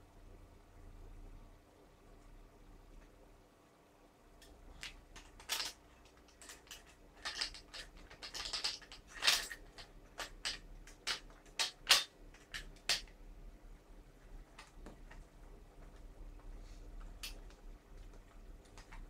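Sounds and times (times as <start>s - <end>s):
clicks of rifle parts being fitted: 4.8s - 13.1s.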